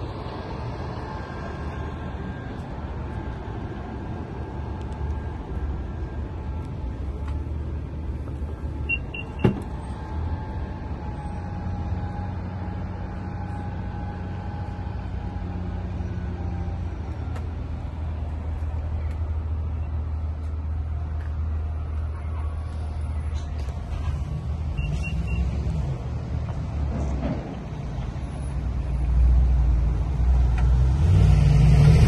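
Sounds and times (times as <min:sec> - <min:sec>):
warning beeps: 0:08.8 - 0:09.6, 0:24.7 - 0:25.6.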